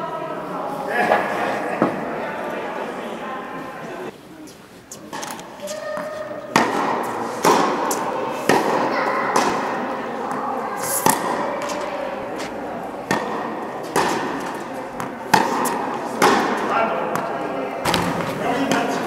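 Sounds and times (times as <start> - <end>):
tennis racket hits: 4.9 - 19.0
tennis ball bounces: 5.1 - 19.0.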